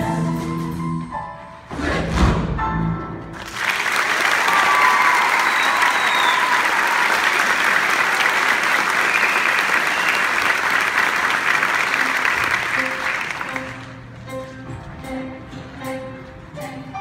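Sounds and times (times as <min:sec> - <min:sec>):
audience applause: 0:03.4 - 0:14.0.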